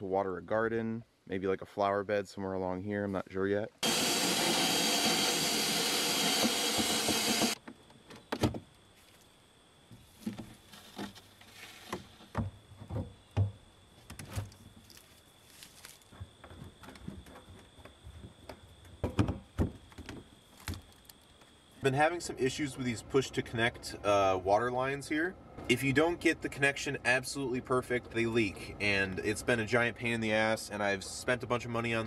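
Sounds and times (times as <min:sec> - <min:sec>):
cordless drill whining: 0:03.8 - 0:07.6
pipe knocks and clunks: 0:11.9 - 0:14.6, 0:19.0 - 0:20.2.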